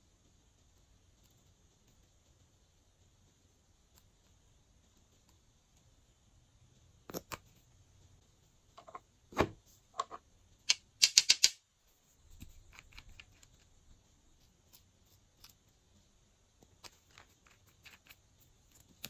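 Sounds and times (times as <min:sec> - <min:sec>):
small bottles clicking: 0:10.0 - 0:11.6.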